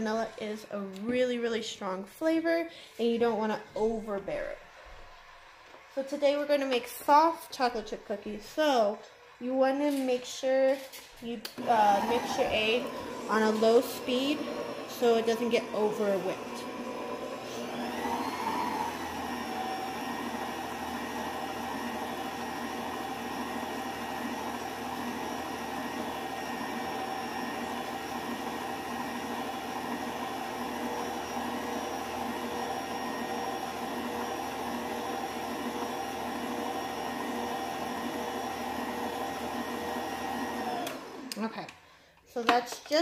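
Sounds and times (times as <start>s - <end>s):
stand mixer motor running: 11.6s - 41.4s.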